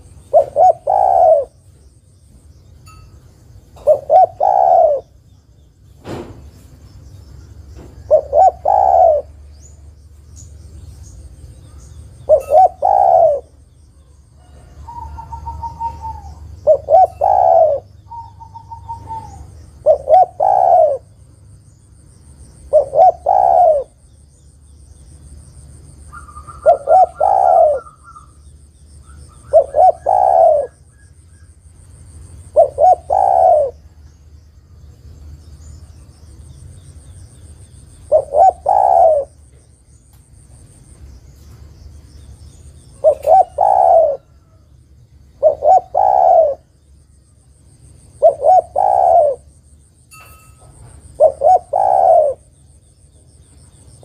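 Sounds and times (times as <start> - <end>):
dove cooing: 0.0 - 1.7, 3.8 - 5.2, 7.8 - 9.6, 12.1 - 21.2, 22.7 - 24.0, 26.1 - 28.4, 29.0 - 31.5, 32.4 - 34.0, 38.0 - 39.6, 42.9 - 44.7, 45.3 - 46.7, 48.0 - 49.6, 50.8 - 52.5
whistled bird chirps: 14.6 - 16.4.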